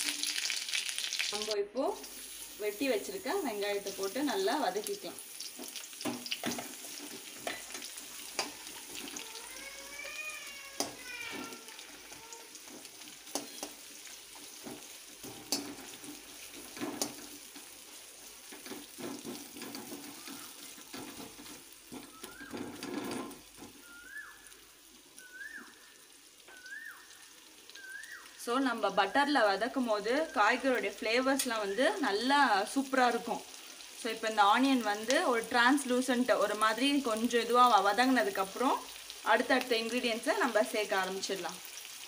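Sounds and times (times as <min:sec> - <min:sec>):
onions sizzling in oil: 0:00.0 - 0:42.0
metal spatula scraping a pan: 0:05.6 - 0:23.6.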